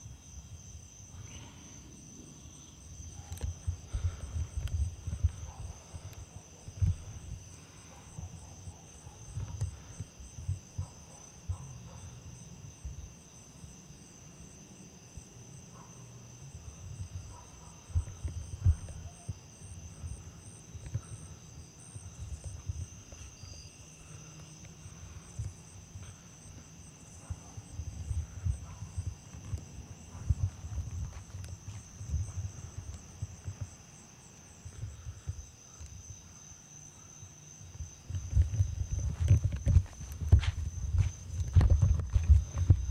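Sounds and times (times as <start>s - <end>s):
night insects trilling: 0.0s - 42.9s.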